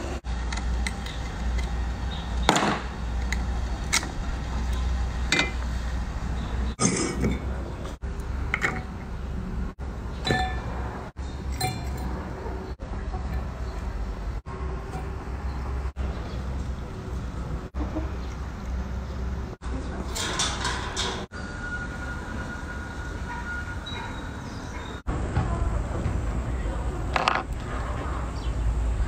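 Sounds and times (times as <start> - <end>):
metal utensils clinking on steel bowls: 3.2 - 5.7, 8.5 - 9.1, 10.1 - 13.9, 20.0 - 21.4.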